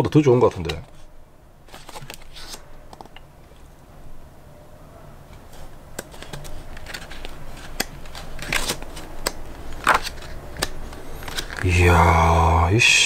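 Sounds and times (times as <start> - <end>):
paper pages rustling: 0.4 - 3.2, 5.4 - 11.6.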